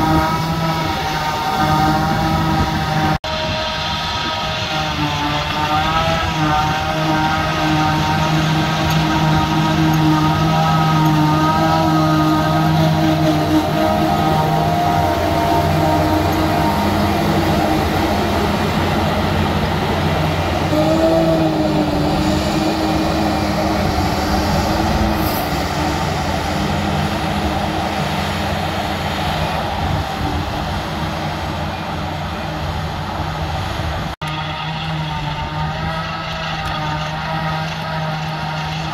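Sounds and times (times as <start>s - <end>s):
diesel harvester running under load: 0.0s - 38.9s
tractor pulling trailer: 0.0s - 38.9s.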